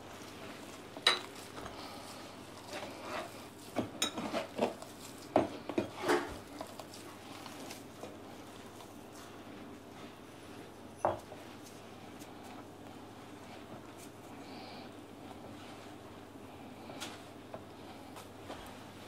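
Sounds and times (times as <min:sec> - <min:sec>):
hands kneading dough: 0:00.0 - 0:19.0
glass clinking against bowls: 0:01.0 - 0:01.3, 0:03.9 - 0:04.3, 0:11.0 - 0:11.3.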